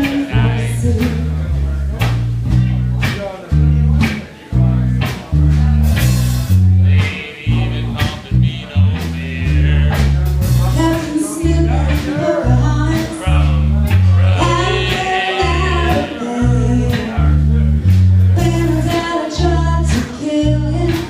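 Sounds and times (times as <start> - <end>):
woman singing into a microphone: 0.0 - 1.2, 10.8 - 13.2, 14.4 - 17.2, 18.4 - 21.0
heavy low bass notes: 0.0 - 21.0
drums with cymbal hits: 2.0 - 21.0.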